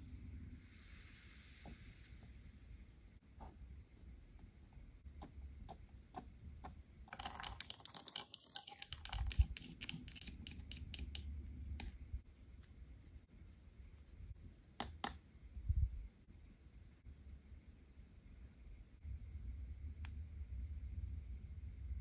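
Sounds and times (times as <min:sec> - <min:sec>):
whisk clicking against bowl: 0:07.1 - 0:11.2.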